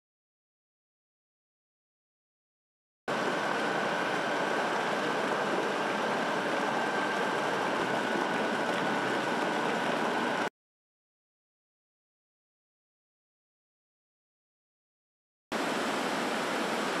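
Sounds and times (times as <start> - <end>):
churning slurry and machinery: 3.1 - 10.5
constant high whine: 3.1 - 10.5.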